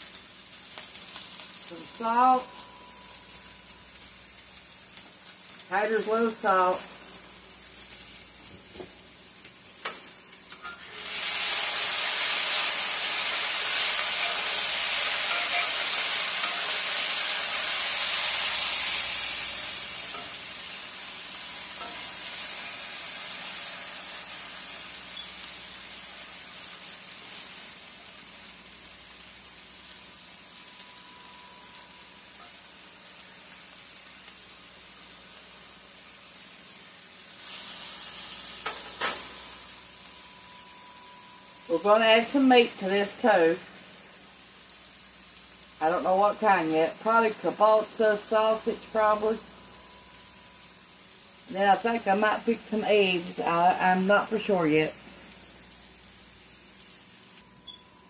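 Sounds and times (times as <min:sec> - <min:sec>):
potatoes stirred in pan: 0:00.0 - 0:39.9
potatoes sizzling in a skillet: 0:00.0 - 0:58.0.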